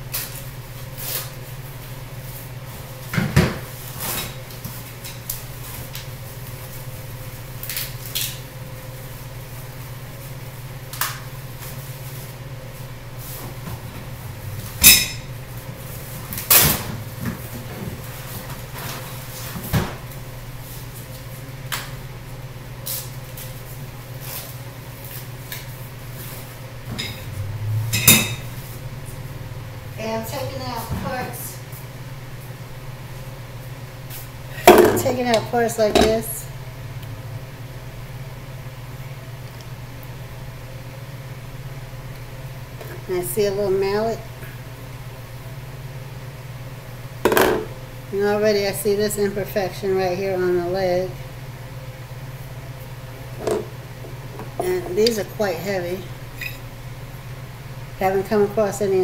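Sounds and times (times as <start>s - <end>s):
steady low hum: 0.0s - 59.0s.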